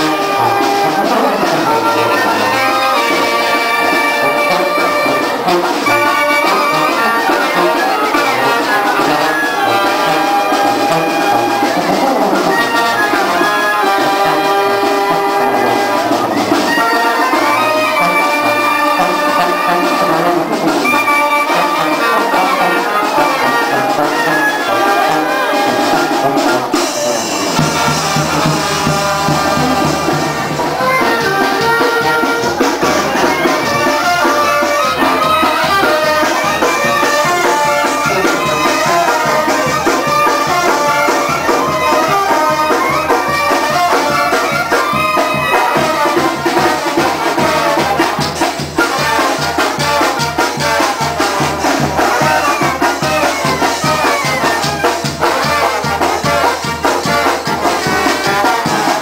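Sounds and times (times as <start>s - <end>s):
brass band with drums: 0.0s - 59.0s.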